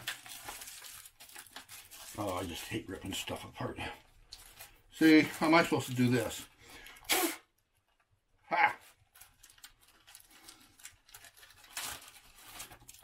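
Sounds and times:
plastic bag rustling: 0.0 - 6.5, 8.9 - 13.0
person exclaiming: 8.5 - 8.9.

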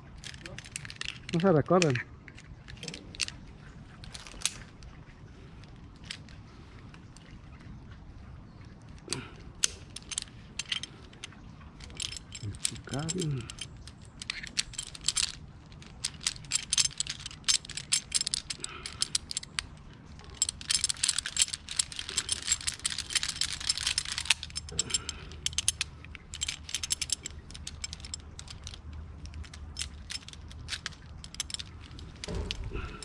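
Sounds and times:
metal climbing hardware clicking and jangling: 0.0 - 7.7, 8.6 - 33.0.

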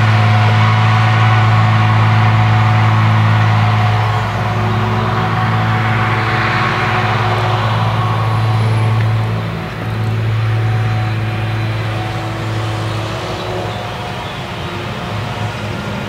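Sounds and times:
deep engine drone: 0.0 - 16.0
rushing noise of chopper and crop: 0.0 - 16.0.

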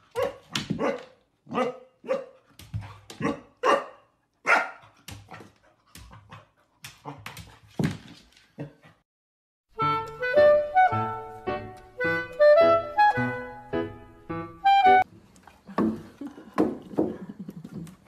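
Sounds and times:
puppy barking: 0.1 - 2.4, 3.2 - 5.0.

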